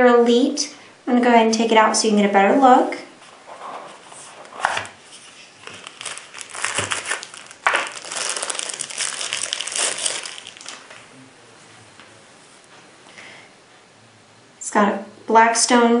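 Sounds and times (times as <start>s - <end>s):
cardboard packaging rustling: 3.3s - 11.1s.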